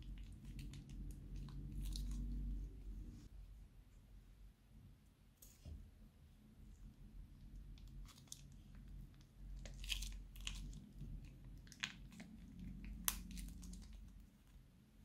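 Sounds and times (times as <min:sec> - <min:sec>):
plastic piping bag crinkling: 0:07.7 - 0:14.3.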